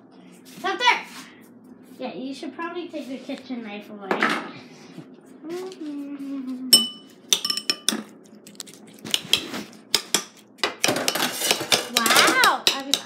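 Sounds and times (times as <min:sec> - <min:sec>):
metal spoon clinking on glass bowl: 0:06.7 - 0:08.0.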